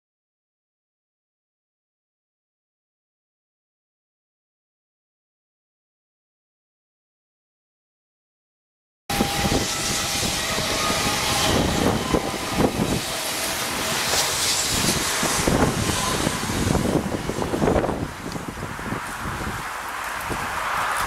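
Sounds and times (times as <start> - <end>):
train wheels on rails: 9.1 - 21.0
wind buffeting microphone: 9.1 - 21.0.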